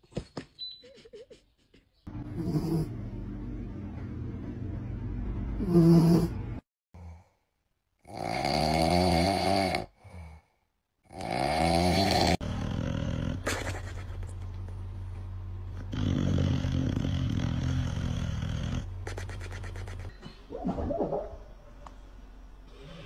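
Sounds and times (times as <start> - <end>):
dog snoring: 2.3 - 3.0, 5.6 - 6.4, 11.1 - 13.5, 15.7 - 18.9.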